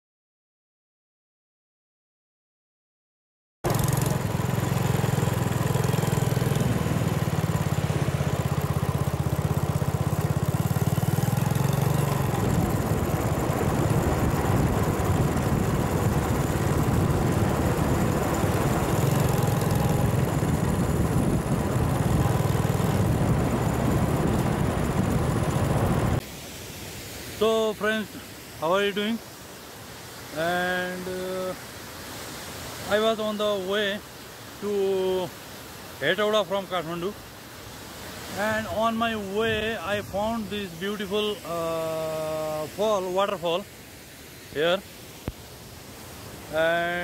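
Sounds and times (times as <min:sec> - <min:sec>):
vehicle engine running: 0:03.6 - 0:26.2.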